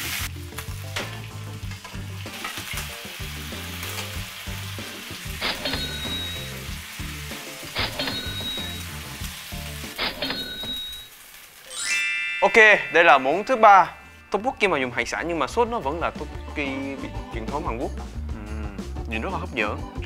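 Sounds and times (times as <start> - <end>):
food sizzling in oil: 0.0 - 15.3.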